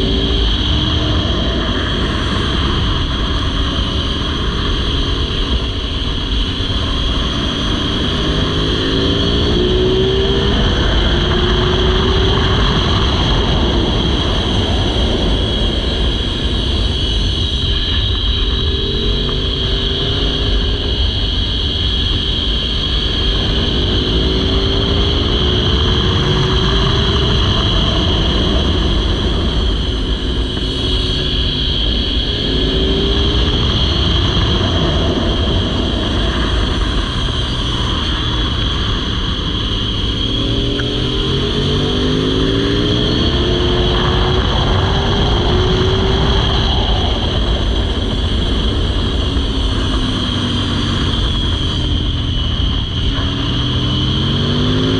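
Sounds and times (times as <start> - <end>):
motorcycle accelerating hard: 0.0 - 54.9
wind noise: 0.0 - 54.9.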